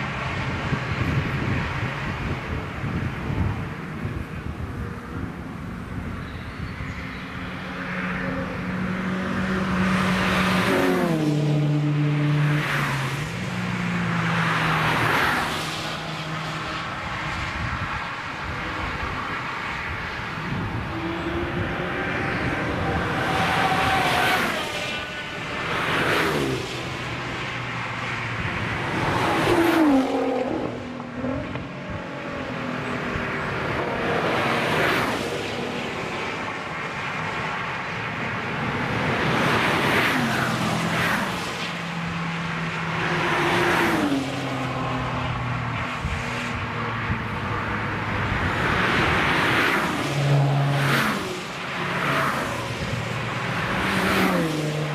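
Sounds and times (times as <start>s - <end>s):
race cars passing at speed: 0.0s - 54.9s.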